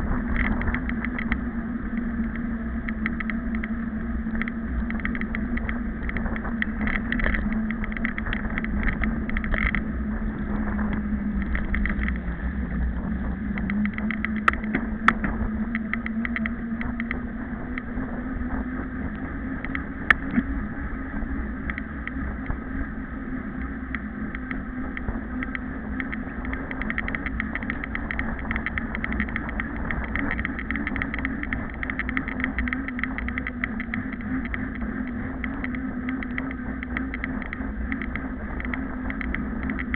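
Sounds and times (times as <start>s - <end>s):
hum: 0.0s - 39.9s
wind rumble on microphone: 0.0s - 39.9s
sharp clicks: 23.9s - 39.9s.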